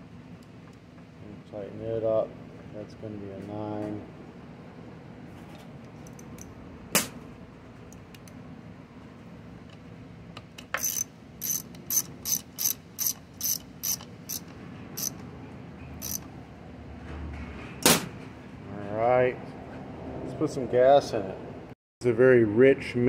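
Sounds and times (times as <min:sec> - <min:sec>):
socket ratchet clicking: 0:10.6 - 0:15.2, 0:16.0 - 0:16.3.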